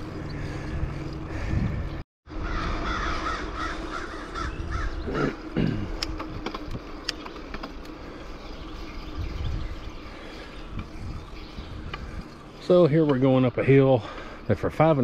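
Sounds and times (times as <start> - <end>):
wind and road rumble: 0.0 - 15.0
sharp clicks: 6.0 - 8.0.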